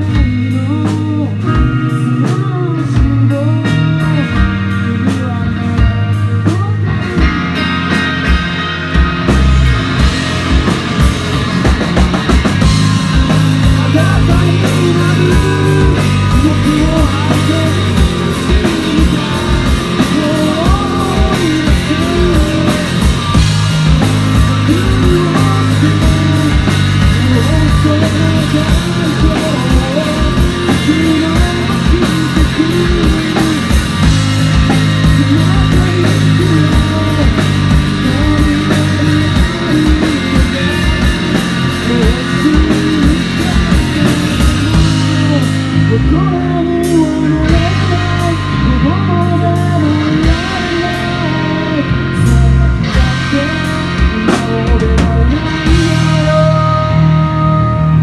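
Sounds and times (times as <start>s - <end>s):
drum kit beat: 0.0s - 58.0s
electric bass: 0.0s - 58.0s
electric guitar: 0.0s - 58.0s.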